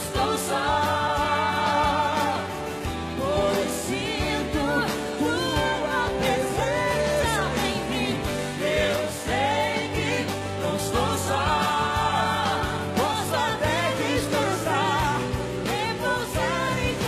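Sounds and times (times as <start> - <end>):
man singing: 0.0 - 12.6
band with keyboards: 0.0 - 17.0
woman singing: 0.0 - 17.0.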